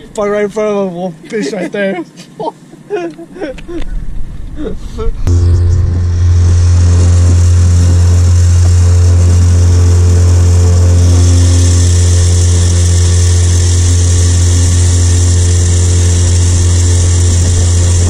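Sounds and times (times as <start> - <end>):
outboard motor running: 5.2 - 18.0.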